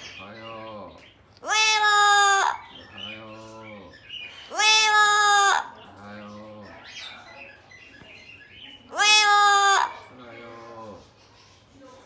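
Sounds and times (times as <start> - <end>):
parrot loud drawn-out calls: 1.4 - 2.8, 4.5 - 5.8, 8.9 - 10.1.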